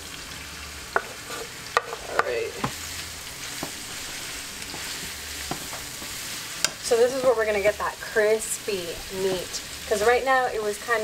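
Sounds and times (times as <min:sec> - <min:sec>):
meat sizzling in hot oil: 0:00.0 - 0:11.0
wooden spoon knocking on pan: 0:00.9 - 0:01.2, 0:01.8 - 0:02.8, 0:04.7 - 0:06.8.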